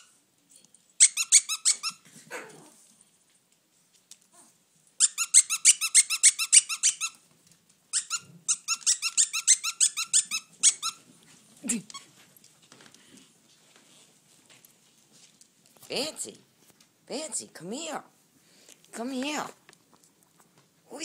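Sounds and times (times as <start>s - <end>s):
animals squeaking at play: 1.0s - 2.5s, 5.0s - 7.2s, 7.9s - 11.1s.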